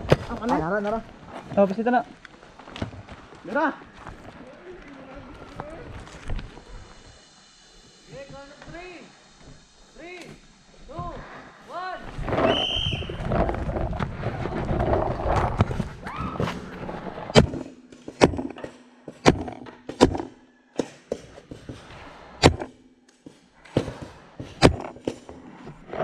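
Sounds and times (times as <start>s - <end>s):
jumbled noise: 0.0s - 15.6s.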